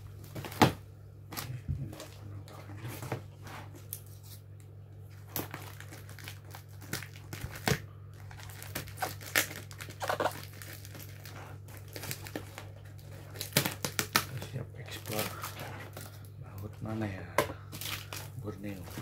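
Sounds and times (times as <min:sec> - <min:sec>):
tape and cardboard tearing: 0:08.5 - 0:11.0.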